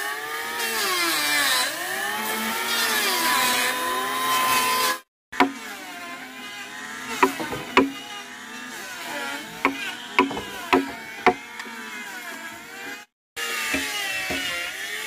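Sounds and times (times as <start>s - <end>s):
sharp knocks on timber: 5.4s - 5.6s, 7.2s - 8.0s, 9.6s - 11.4s, 13.7s - 14.6s.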